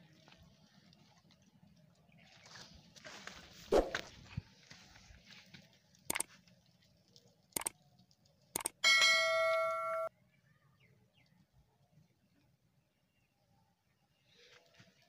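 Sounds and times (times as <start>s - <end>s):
bright bell chime: 8.8s - 10.1s.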